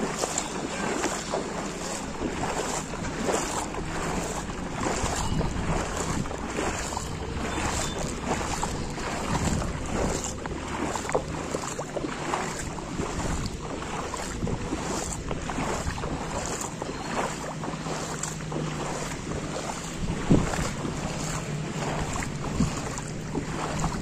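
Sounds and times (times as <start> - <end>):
water sloshing from wading: 0.0 - 24.0
wind buffeting microphone: 0.0 - 24.0.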